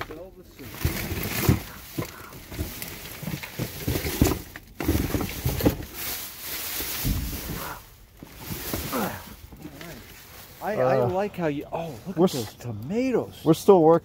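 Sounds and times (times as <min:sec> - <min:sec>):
plastic bags crinkling: 0:00.1 - 0:13.1
cardboard boxes knocking: 0:00.7 - 0:06.0.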